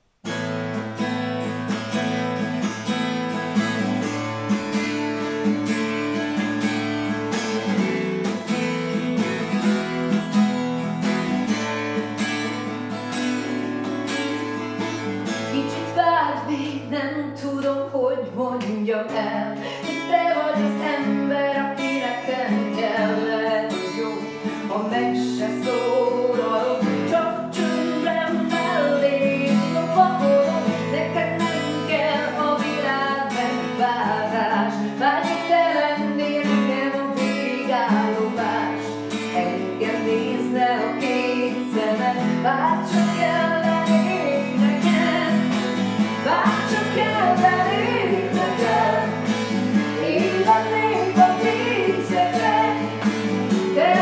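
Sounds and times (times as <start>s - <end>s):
acoustic guitar strumming chords: 0.0s - 54.0s
woman singing: 15.4s - 54.0s.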